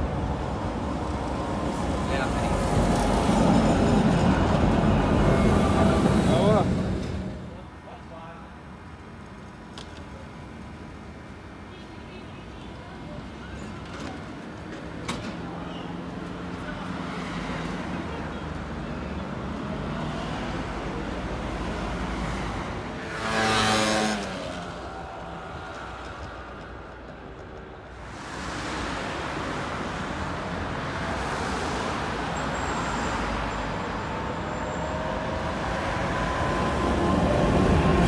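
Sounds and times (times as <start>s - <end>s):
street traffic: 0.0s - 38.0s
vehicle passing loudly: 23.0s - 25.4s.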